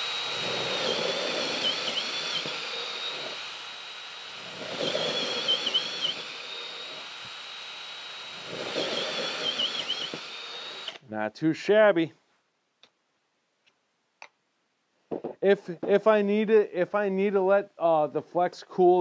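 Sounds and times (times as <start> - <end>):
drill bit cutting through wood: 0.0 - 11.0
drill motor whine: 0.0 - 11.0.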